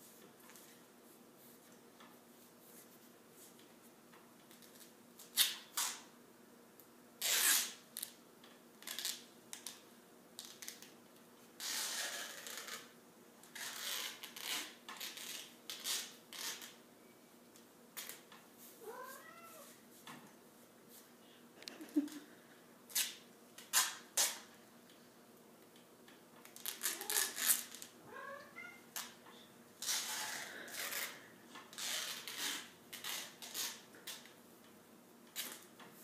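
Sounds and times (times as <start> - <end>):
tape ripping and crackling: 4.5 - 6.1, 7.2 - 8.2, 8.8 - 9.8, 10.4 - 10.9, 11.6 - 16.8, 18.0 - 18.3, 22.9 - 24.5, 26.4 - 28.0, 28.9 - 29.2, 29.8 - 34.3, 35.3 - 35.8.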